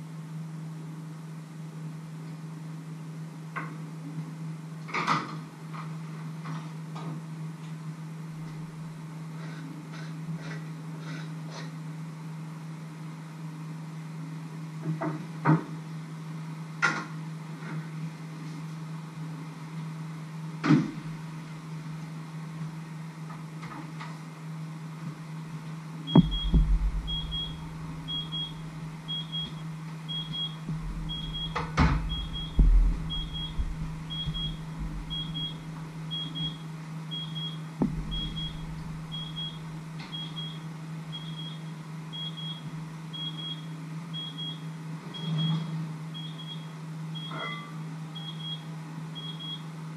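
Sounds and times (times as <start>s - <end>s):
steady low hum: 25.4s - 41.5s
short electronic beeps: 26.1s - 36.6s, 37.2s - 40.6s.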